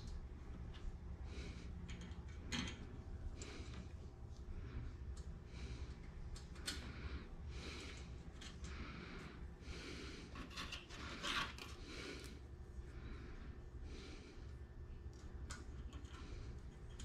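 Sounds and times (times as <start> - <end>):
soft rubbing of metal strip: 10.3 - 12.3.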